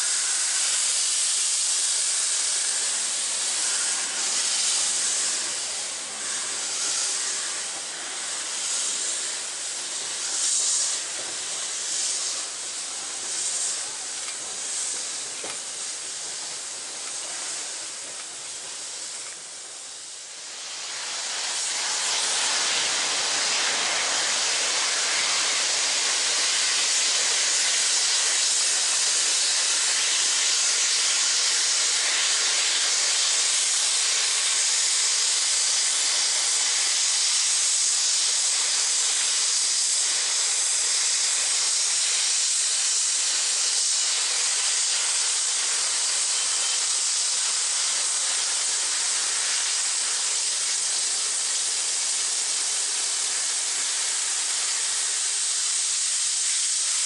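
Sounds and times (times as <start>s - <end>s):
steam locomotive hissing steam: 0.0s - 57.0s.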